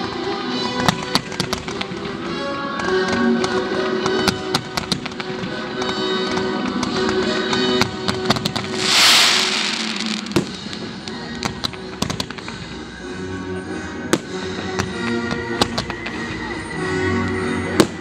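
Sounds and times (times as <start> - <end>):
fireworks cracking and popping: 8.6 - 11.8
firework hissing burst: 8.7 - 11.4.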